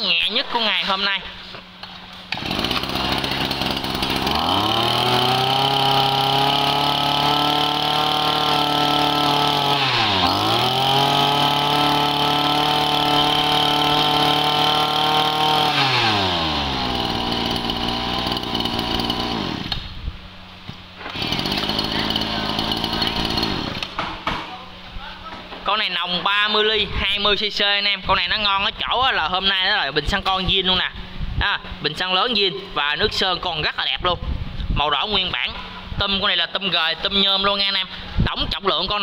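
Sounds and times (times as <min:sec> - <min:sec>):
brush cutter engine revving: 0:02.3 - 0:20.0, 0:21.0 - 0:24.0.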